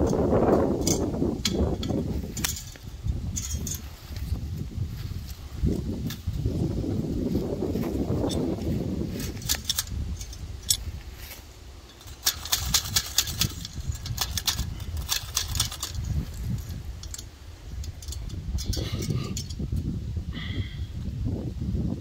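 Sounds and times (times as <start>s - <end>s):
wire and pliers clinking: 0.0s - 4.4s, 7.8s - 19.8s.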